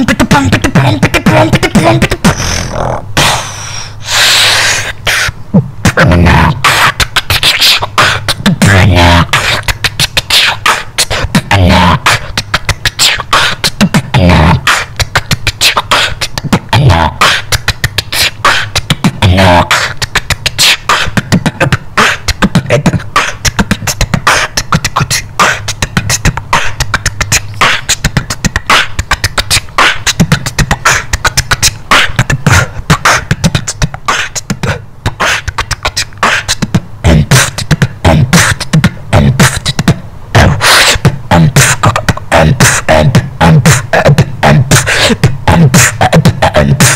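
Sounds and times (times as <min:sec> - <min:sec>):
wobbling bass notes: 0:00.0 - 0:03.3, 0:08.3 - 0:10.1, 0:11.3 - 0:12.9, 0:13.7 - 0:15.6
beatboxing: 0:00.0 - 0:46.9.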